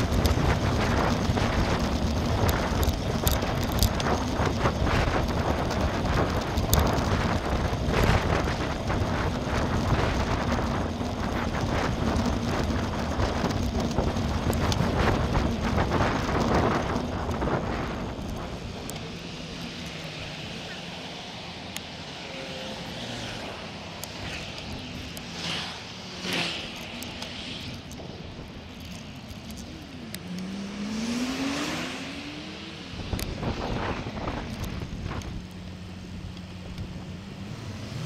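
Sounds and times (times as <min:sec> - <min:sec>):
wind buffeting microphone: 0:00.0 - 0:20.7, 0:30.6 - 0:38.0
bike tyre and frame rattle: 0:00.0 - 0:20.8.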